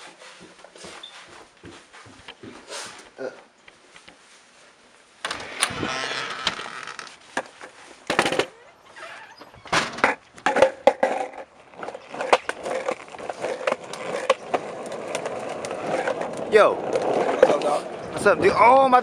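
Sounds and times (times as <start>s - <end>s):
skateboard wheels rolling on concrete: 0.0s - 19.0s
door opening and shutting: 5.2s - 7.2s, 8.1s - 10.2s
longboard clattering on concrete: 7.1s - 8.6s, 9.7s - 19.0s.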